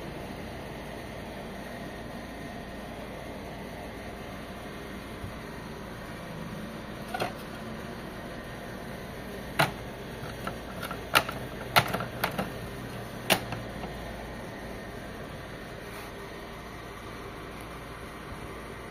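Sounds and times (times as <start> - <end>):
sharp plastic clicks and knocks: 9.6 - 12.6.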